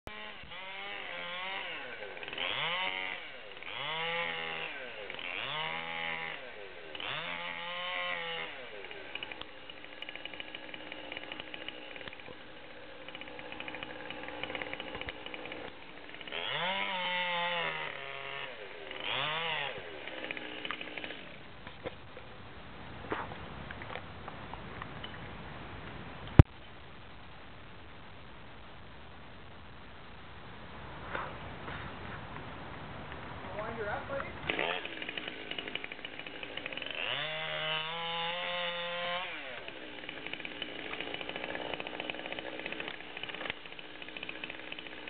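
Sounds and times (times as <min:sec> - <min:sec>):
chainsaw cutting wood: 0:00.1 - 0:22.0, 0:33.6 - 0:45.0.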